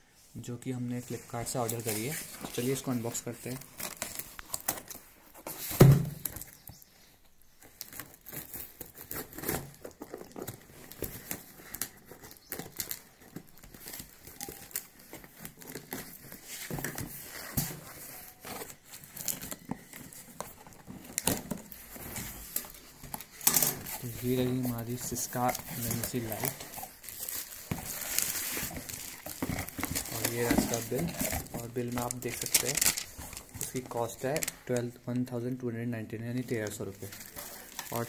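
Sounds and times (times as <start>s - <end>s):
packing tape tearing: 3.4s - 6.6s, 7.6s - 34.6s, 37.0s - 38.0s
box rustling: 7.6s - 34.9s, 36.5s - 38.0s.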